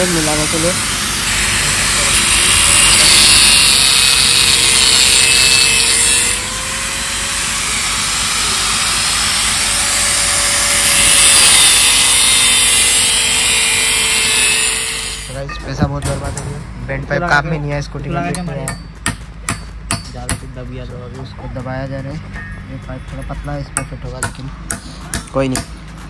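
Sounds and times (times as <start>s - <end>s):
angle grinder cutting metal pipe: 0.0s - 16.2s.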